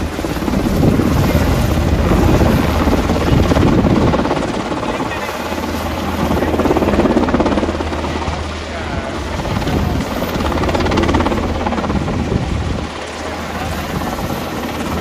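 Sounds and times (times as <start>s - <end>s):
helicopter flying overhead: 0.0s - 15.0s.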